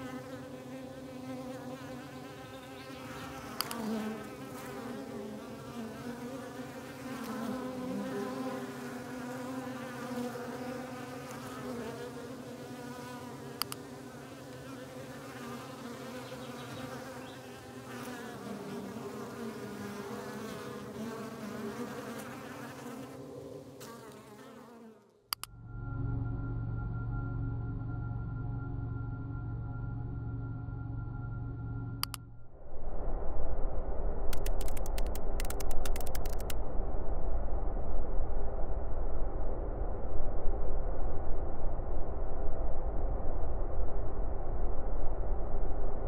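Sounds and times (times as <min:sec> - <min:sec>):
bees buzzing: 0:00.0 - 0:25.0.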